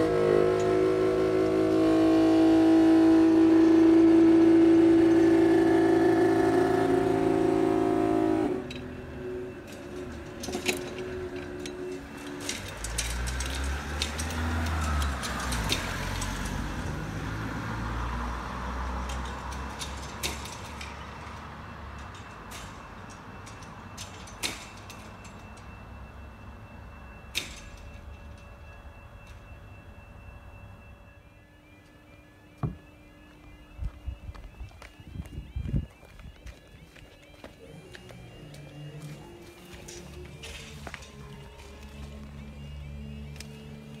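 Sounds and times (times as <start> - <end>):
loud pitched tone: 0.0 - 10.0
road vehicles passing: 0.0 - 44.0.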